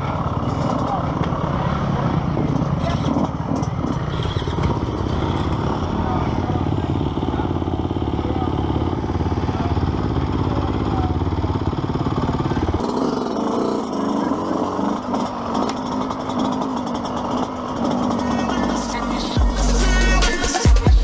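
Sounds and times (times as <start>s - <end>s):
dirt bike engine idling: 0.0s - 21.0s.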